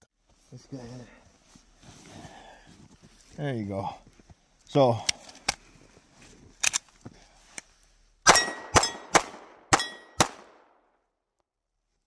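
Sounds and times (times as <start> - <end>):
faint gun handling clicks: 5.0 - 5.7, 6.6 - 7.7
pistol shots: 8.3 - 10.8.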